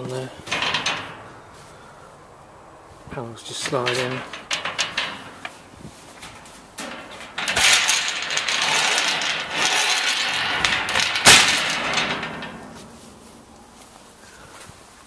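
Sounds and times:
metal clank: 0:00.0 - 0:01.5, 0:03.5 - 0:13.9
metal cage panel scraping and rattling: 0:00.0 - 0:01.7, 0:03.1 - 0:14.1.

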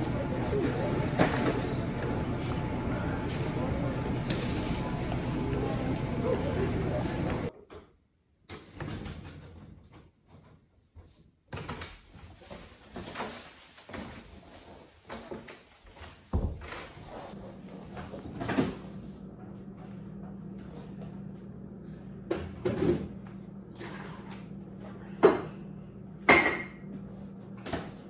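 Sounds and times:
shop background noise: 0:00.0 - 0:07.6.

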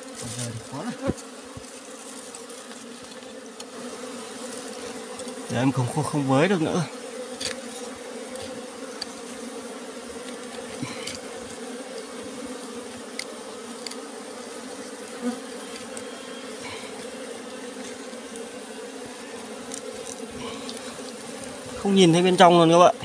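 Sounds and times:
honeybees buzzing: 0:00.0 - 0:23.0.

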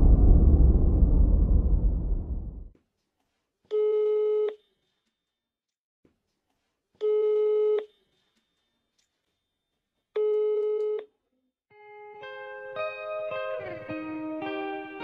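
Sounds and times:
low noise: 0:00.0 - 0:02.7.

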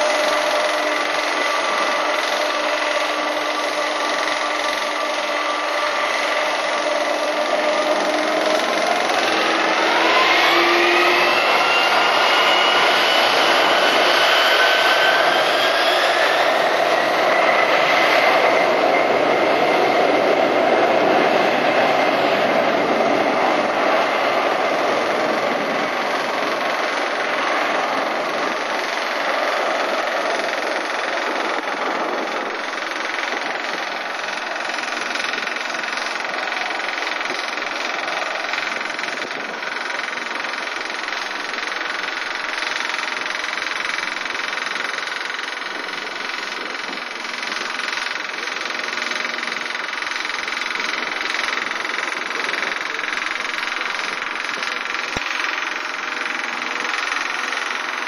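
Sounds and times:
faint jet engine whine: 0:00.0 - 0:58.0
jet engines rumbling: 0:00.0 - 0:58.0.

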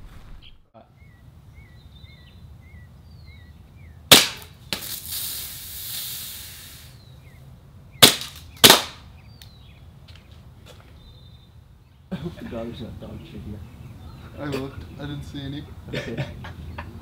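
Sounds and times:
small birds chirping: 0:00.2 - 0:17.0
pistol shots: 0:04.1 - 0:04.9, 0:08.0 - 0:09.0
hiss: 0:04.7 - 0:07.1.

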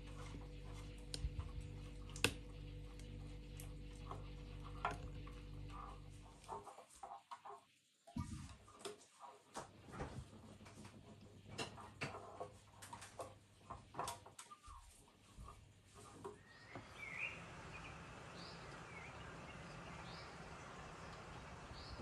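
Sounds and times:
bird chirps: 0:16.4 - 0:22.0.

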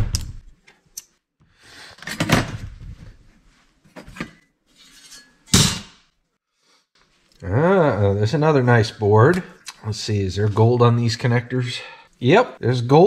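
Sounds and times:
metal parts scraping and rustling: 0:04.1 - 0:05.8.

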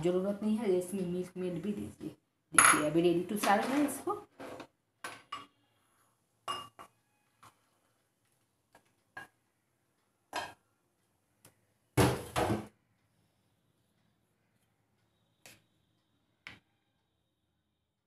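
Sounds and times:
kitchenware clatter: 0:02.6 - 0:05.6.

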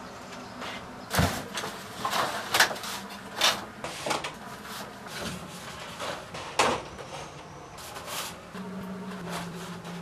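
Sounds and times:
stiff paper rustling and scraping: 0:01.1 - 0:06.6, 0:07.8 - 0:10.0.

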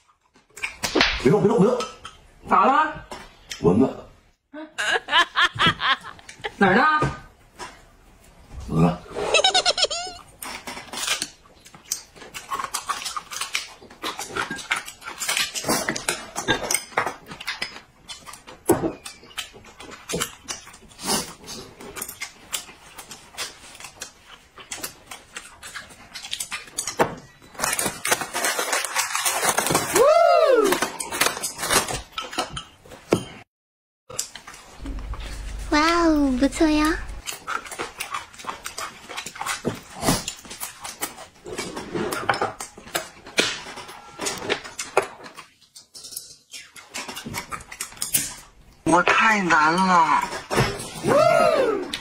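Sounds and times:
chewing: 0:10.2 - 0:29.8, 0:36.5 - 0:43.2, 0:44.3 - 0:48.8
whimpering cry: 0:51.0 - 0:51.9.

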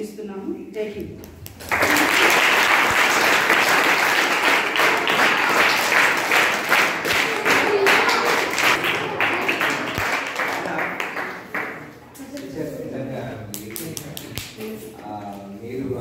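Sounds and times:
crowd applauding: 0:01.6 - 0:12.0.

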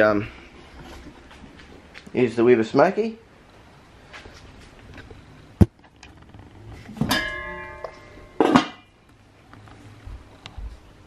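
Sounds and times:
metal clattering: 0:06.9 - 0:08.9
metal lid clanging: 0:07.0 - 0:08.9.

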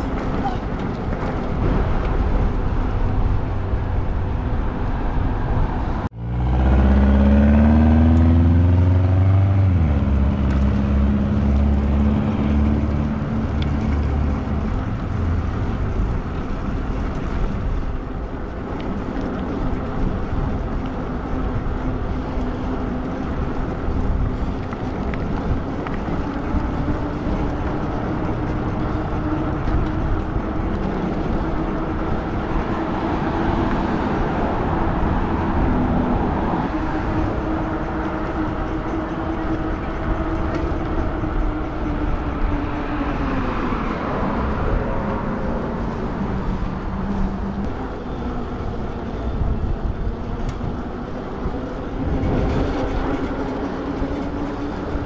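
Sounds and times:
road and wind noise: 0:00.0 - 0:55.0
vehicle engine accelerating: 0:01.5 - 0:55.0.

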